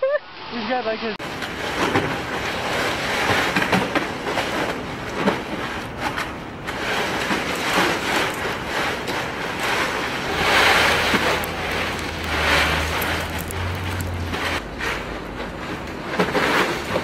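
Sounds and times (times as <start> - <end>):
ice cubes rattling and crunching: 6.7 - 17.0.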